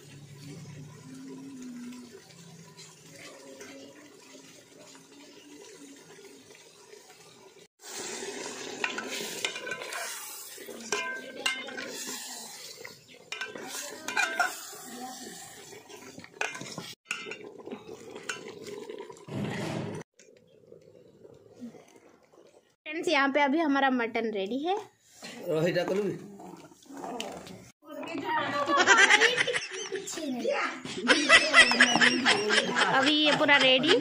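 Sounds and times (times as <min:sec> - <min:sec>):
meat sizzling: 0:04.4 - 0:19.2
metal ladle scraping a pot: 0:08.6 - 0:19.6.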